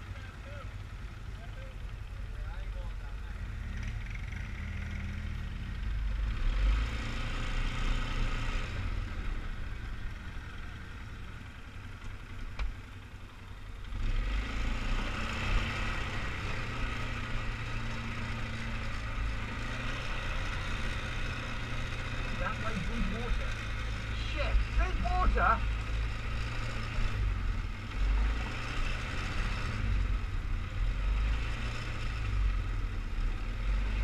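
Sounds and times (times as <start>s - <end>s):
quad bike engine revving: 13.9s - 34.0s.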